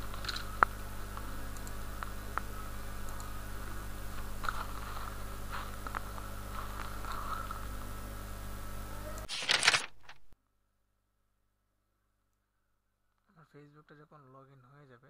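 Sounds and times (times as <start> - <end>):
low electrical hum: 0.0 - 10.4
computer mouse clicks: 1.5 - 3.3.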